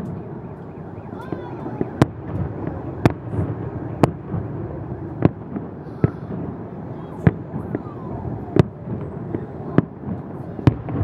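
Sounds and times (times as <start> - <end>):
background noise: 0.0 - 11.0
fireworks bangs: 0.0 - 11.0.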